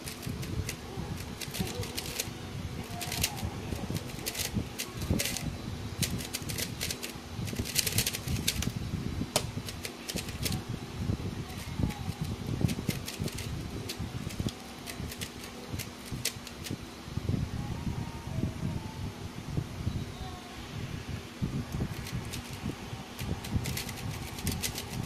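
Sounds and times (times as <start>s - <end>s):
speedcube turning clicks: 0.0s - 8.8s, 9.4s - 10.6s, 11.6s - 16.8s, 21.9s - 22.6s, 23.2s - 25.0s.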